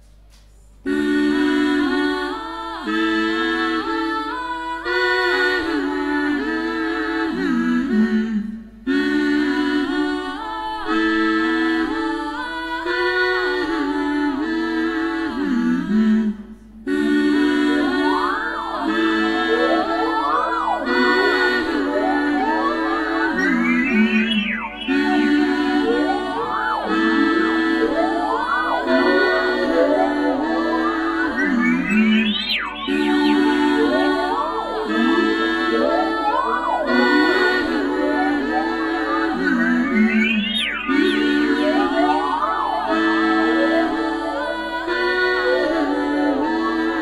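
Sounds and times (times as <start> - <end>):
synthesizer keyboard melody loop: 17.0 - 47.0
synthesizer swooping glides: 17.8 - 46.8.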